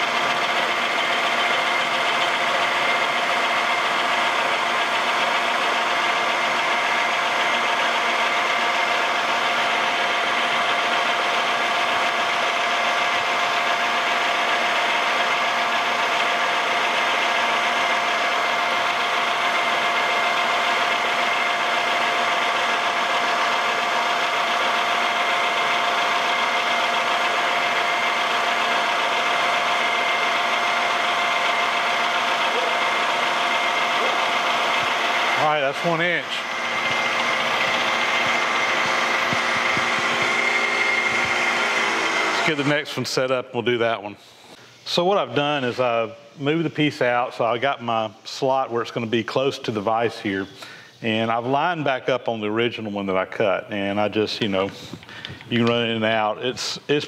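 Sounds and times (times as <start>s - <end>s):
milling machine cutting steel: 0.0s - 43.3s.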